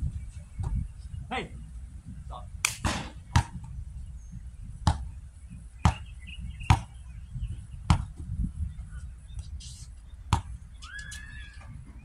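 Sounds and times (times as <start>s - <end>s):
wind on microphone: 0.0s - 12.0s
basketball bouncing on hard court: 2.8s - 3.7s, 4.8s - 5.1s, 5.8s - 6.1s, 6.7s - 6.9s, 7.9s - 8.2s, 10.3s - 10.6s.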